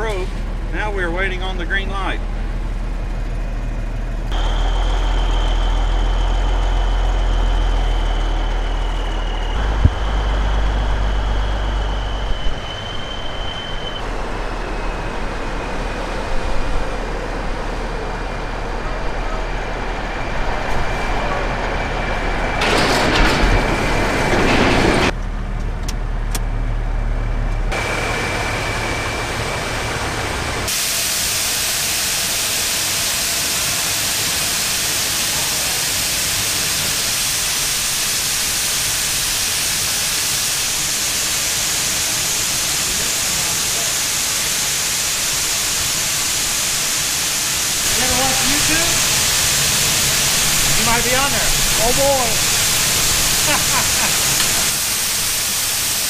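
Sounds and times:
truck diesel engine running: 0:00.0 - 0:56.0
air hiss burst: 0:30.7 - 0:56.0.

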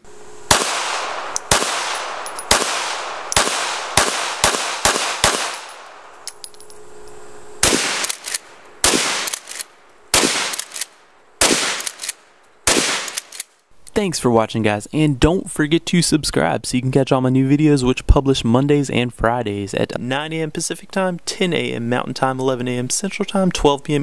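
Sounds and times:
gunshots with long echo: 0:00.5 - 0:06.2, 0:07.6 - 0:13.3.

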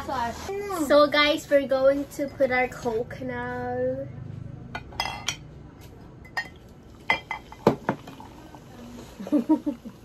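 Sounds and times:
glass bottle and glasses clinking: 0:04.8 - 0:05.4, 0:06.2 - 0:08.0.

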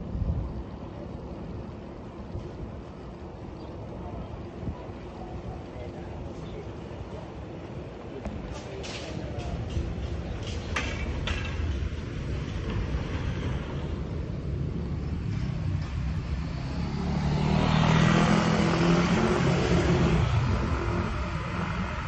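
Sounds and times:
wind buffeting microphone: 0:00.0 - 0:06.6
bicycle tyres rumbling on asphalt: 0:00.0 - 0:22.0
motorbike engine passing: 0:14.8 - 0:22.0.

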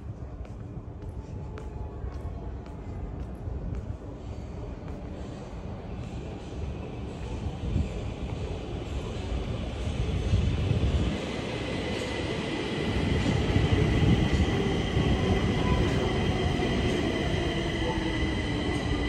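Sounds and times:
train rumble: 0:00.0 - 0:19.0
train high whine: 0:04.0 - 0:19.0.

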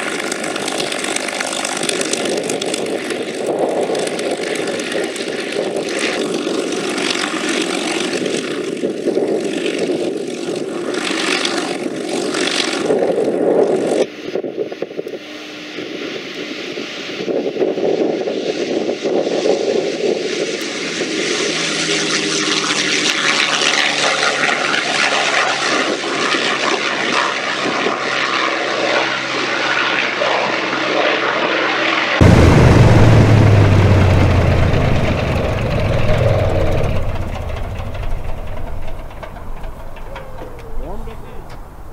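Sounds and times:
propeller plane engine running: 0:00.0 - 0:16.3, 0:18.9 - 0:41.9
plane flying past: 0:19.3 - 0:41.9
plane engine idling: 0:32.2 - 0:41.9.

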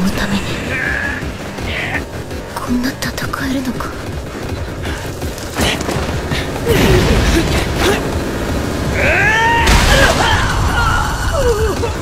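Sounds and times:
music: 0:00.0 - 0:10.2
loud noisy burst: 0:04.1 - 0:12.0.

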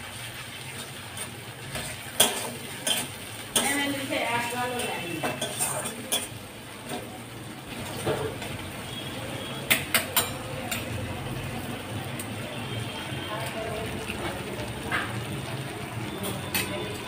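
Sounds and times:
metal spatula scraping a pan: 0:00.7 - 0:07.2.

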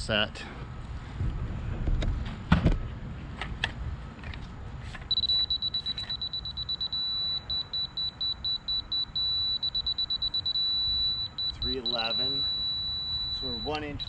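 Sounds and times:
rapid high-pitched beeps: 0:05.1 - 0:14.0
steady held beep tone: 0:05.1 - 0:14.0.

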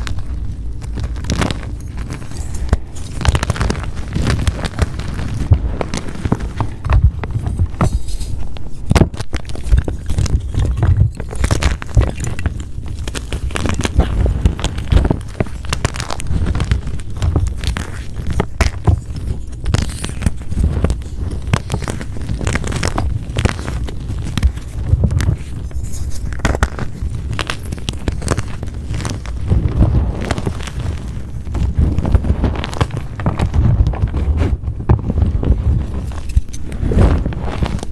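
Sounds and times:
chalk crunching and crackling: 0:00.0 - 0:37.9
dull low thumps: 0:05.5 - 0:07.9.

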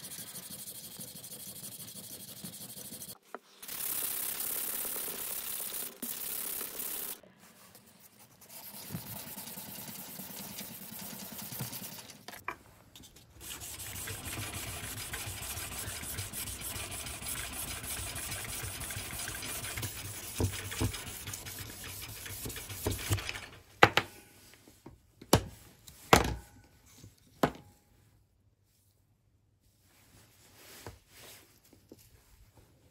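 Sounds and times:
knife rubbing on sandpaper: 0:13.0 - 0:23.3.

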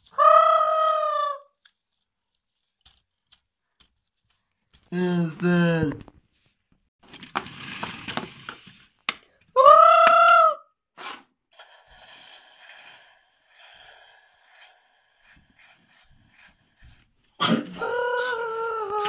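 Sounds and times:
person doing high-pitched play voice: 0:00.0 - 0:01.6.

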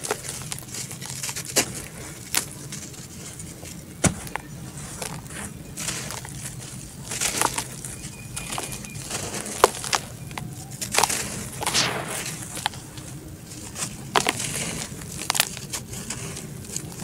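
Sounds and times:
dirt chunks crunching in hands: 0:00.0 - 0:17.0
gritty rush of falling powder: 0:11.2 - 0:15.3.

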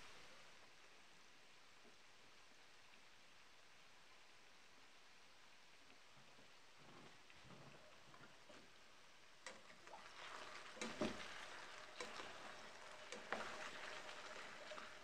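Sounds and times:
potatoes sizzling in pot: 0:04.8 - 0:15.0.

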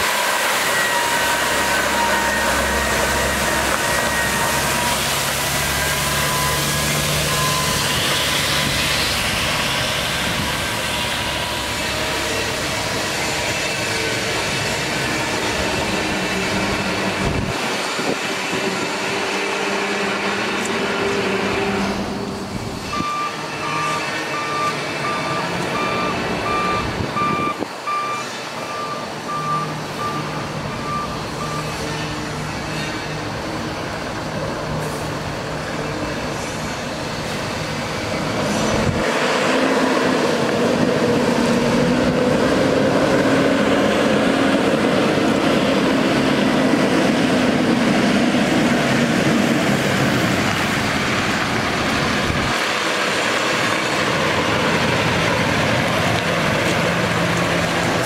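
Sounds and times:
diesel truck engine running: 0:00.0 - 0:58.0
reverse beeper beeping: 0:05.6 - 0:07.9.

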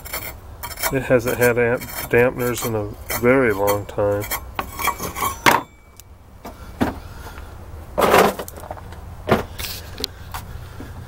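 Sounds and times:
low steady hum: 0:00.0 - 0:11.0
metal parts handling knocks: 0:01.8 - 0:06.0.

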